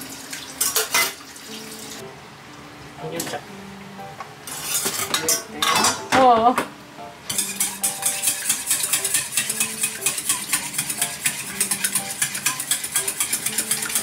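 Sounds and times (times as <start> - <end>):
light background music: 0.3 - 14.0
mixture stirred in a bowl: 7.4 - 14.0.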